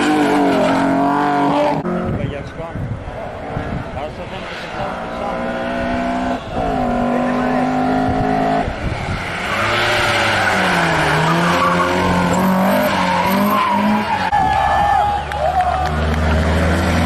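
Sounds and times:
race car engine revving: 0:04.2 - 0:14.3
tyre squeal and skidding: 0:09.0 - 0:14.8.

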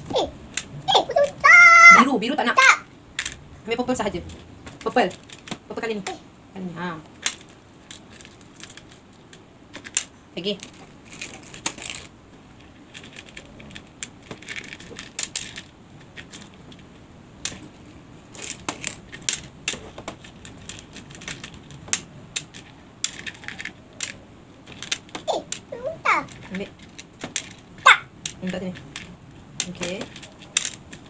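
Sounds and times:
small pieces clicking on plastic: 0:07.2 - 0:12.1, 0:12.9 - 0:16.8, 0:18.3 - 0:25.7, 0:26.3 - 0:27.6, 0:28.2 - 0:31.0.

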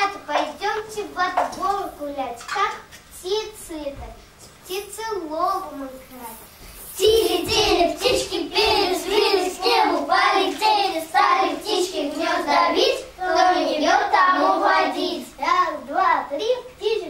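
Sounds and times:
children singing: 0:07.0 - 0:15.7.

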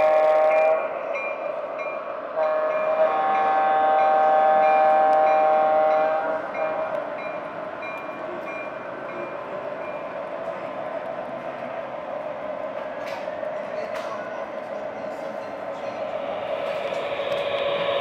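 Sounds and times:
model train horn blasts: 0:00.0 - 0:01.0, 0:02.4 - 0:07.0
train bell ringing: 0:00.0 - 0:10.7, 0:15.0 - 0:18.0
model train rumbling on track: 0:00.0 - 0:18.0.

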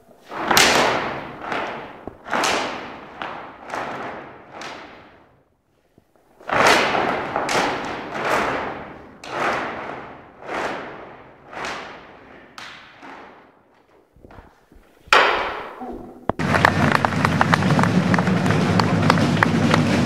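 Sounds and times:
cloth flags swishing and snapping: 0:00.0 - 0:15.7.

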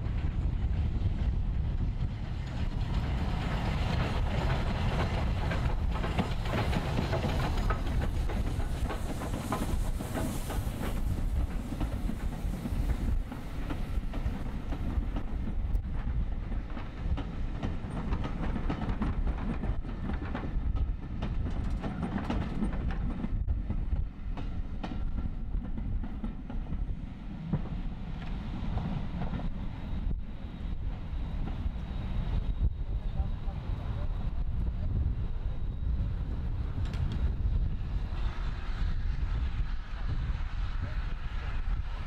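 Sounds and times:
steam train rumbling past: 0:00.0 - 0:42.0
wheels clacking over rail joints: 0:02.8 - 0:23.3.

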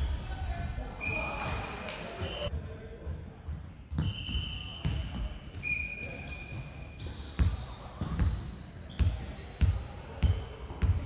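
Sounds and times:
ball bouncing on gym floor: 0:03.5 - 0:05.7, 0:09.0 - 0:11.0.

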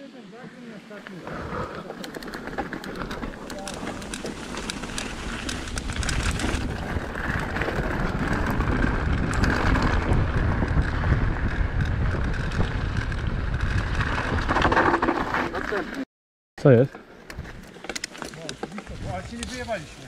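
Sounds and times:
tyres rumbling over dirt: 0:01.1 - 0:15.9
wind buffeting microphone: 0:02.5 - 0:14.7, 0:18.9 - 0:19.8.

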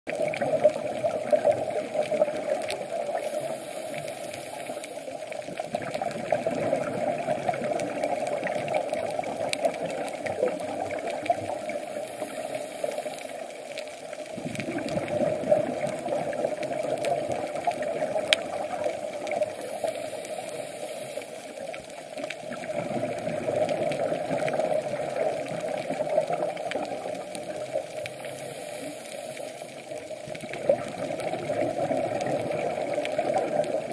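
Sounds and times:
muffled underwater hum: 0:00.1 - 0:07.0, 0:07.7 - 0:33.9
scuba regulator breathing: 0:03.0 - 0:05.4, 0:11.6 - 0:13.9, 0:19.0 - 0:22.0, 0:27.9 - 0:30.1
bubbles rushing: 0:05.7 - 0:12.0, 0:14.3 - 0:19.6, 0:22.4 - 0:27.8, 0:30.4 - 0:33.9.

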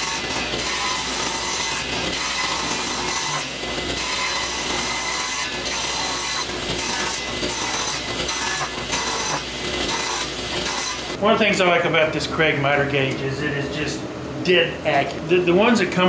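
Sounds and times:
table saw cutting wood: 0:00.0 - 0:11.2.

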